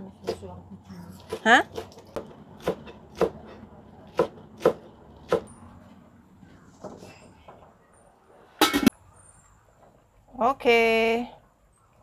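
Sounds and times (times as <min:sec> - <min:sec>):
knife chopping on cutting board: 0:01.2 - 0:05.5.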